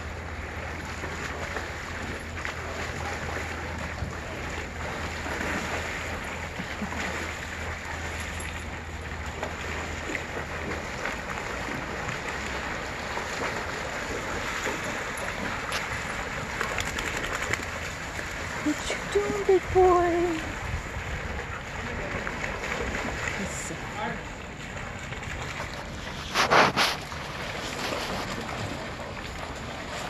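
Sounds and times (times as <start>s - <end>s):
low steady hum: 0.0s - 30.0s
water sloshing and splashing: 0.0s - 30.0s.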